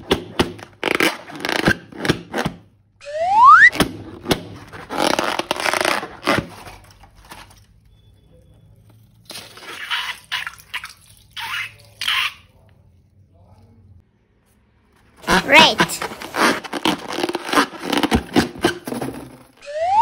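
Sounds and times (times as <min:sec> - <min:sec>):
slime crackly scraping: 0:15.2 - 0:18.8.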